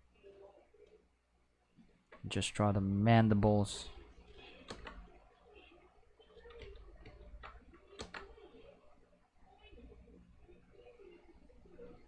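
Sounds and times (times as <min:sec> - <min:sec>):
quiet room hum: 0:00.0 - 0:12.0
mouse and keyboard clicks: 0:04.6 - 0:05.1, 0:06.4 - 0:08.4.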